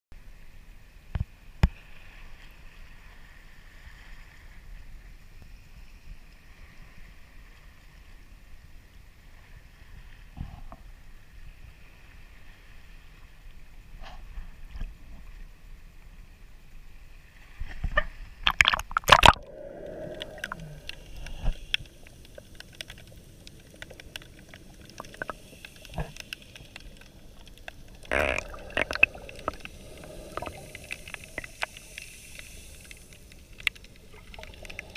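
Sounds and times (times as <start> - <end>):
water gurgling: 18.4 - 34.9
water splashing: 18.4 - 34.9.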